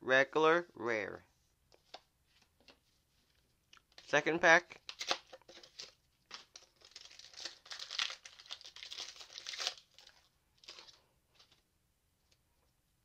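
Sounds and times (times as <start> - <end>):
foil wrapper crinkling and tearing: 4.8 - 11.0.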